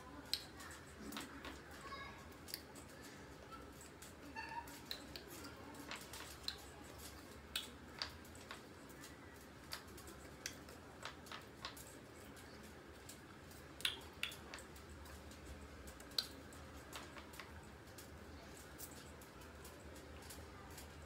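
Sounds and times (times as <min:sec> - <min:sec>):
mouth clicks: 0:13.8 - 0:14.4.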